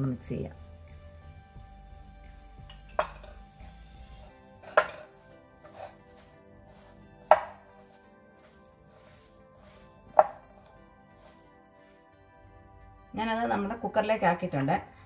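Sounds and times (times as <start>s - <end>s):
faint background music: 0.0s - 15.0s
hand mixing food in bowl: 4.6s - 12.1s
knocks against bowl: 4.7s - 5.1s.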